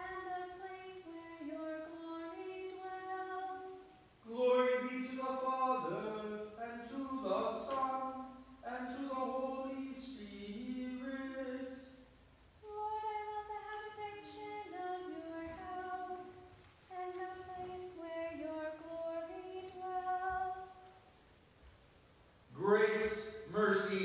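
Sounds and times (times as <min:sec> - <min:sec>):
unaccompanied person singing: 0:00.0 - 0:12.0, 0:12.6 - 0:21.0.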